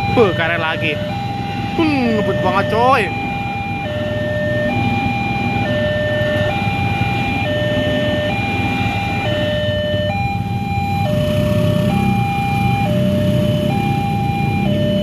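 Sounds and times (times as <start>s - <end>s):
low traffic rumble: 0.0s - 15.0s
two-tone level crossing alarm: 0.0s - 15.0s.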